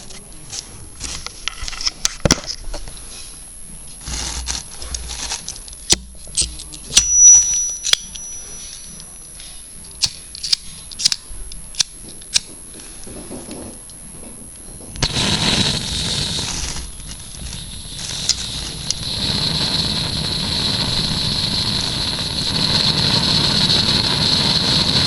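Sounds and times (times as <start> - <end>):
thin high whistle: 6.8 - 9.7.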